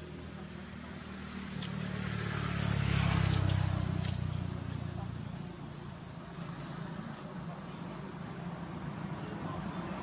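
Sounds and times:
vehicle engine passing: 0:00.0 - 0:10.0.

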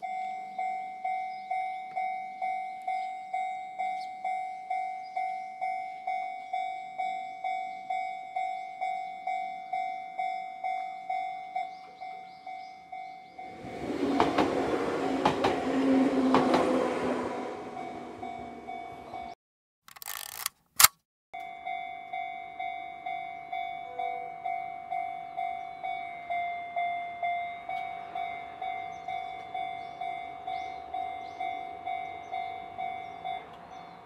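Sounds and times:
level crossing warning bell: 0:00.0 - 0:19.4, 0:21.4 - 0:34.0
train wheels clicking over rail joints: 0:13.6 - 0:16.8.

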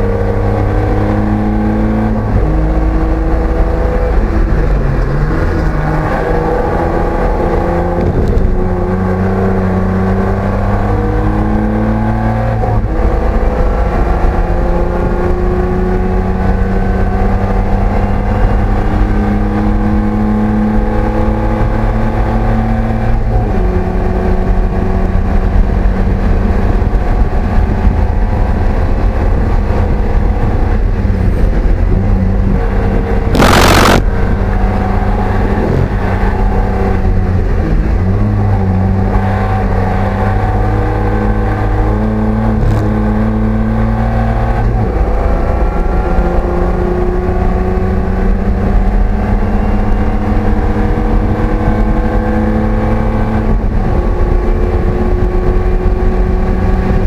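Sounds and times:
race car engine revving: 0:00.0 - 0:57.0
loud rush of noise: 0:30.8 - 0:46.8.

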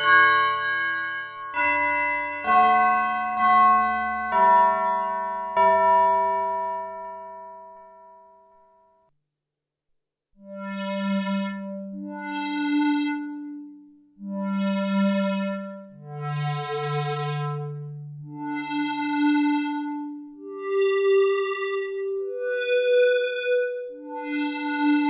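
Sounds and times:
synthesizer sustained bright notes: 0:10.4 - 0:25.0.

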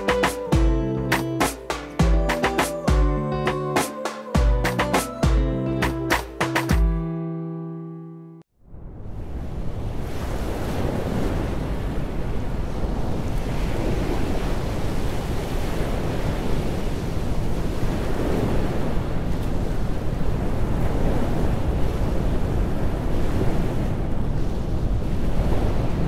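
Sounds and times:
wind buffeting microphone: 0:08.9 - 0:26.0.

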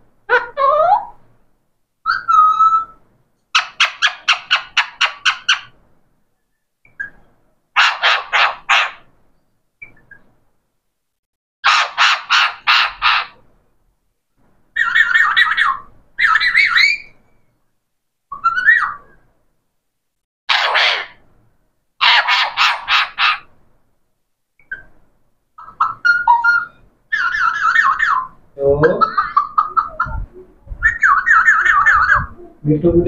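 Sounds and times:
parakeet calling: 0:03.6 - 0:05.7, 0:06.9 - 0:09.1, 0:11.6 - 0:13.4, 0:14.8 - 0:17.2, 0:18.3 - 0:19.2, 0:20.5 - 0:21.2, 0:22.0 - 0:23.5, 0:24.6 - 0:25.0, 0:25.6 - 0:32.6.

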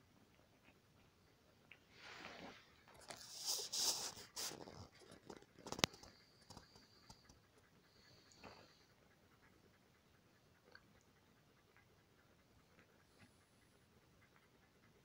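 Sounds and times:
puppies suckling and rustling: 0:00.1 - 0:15.0
faint ticks: 0:05.0 - 0:15.0.

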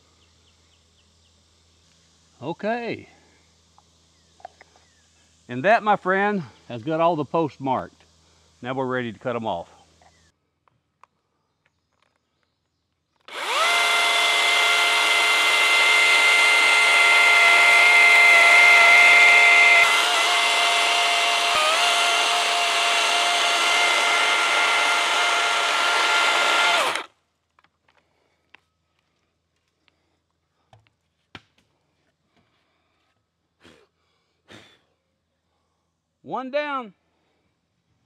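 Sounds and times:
circular saw cutting wood: 0:13.3 - 0:27.1.

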